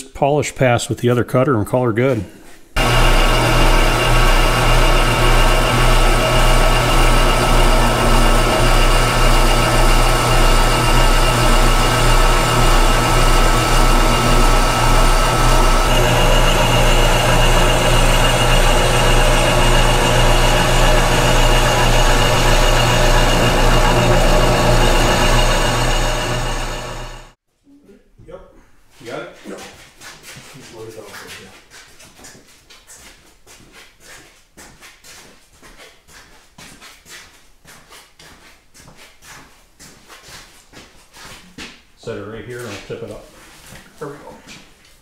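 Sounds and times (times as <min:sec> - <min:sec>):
milling machine hum: 0:02.8 - 0:27.4.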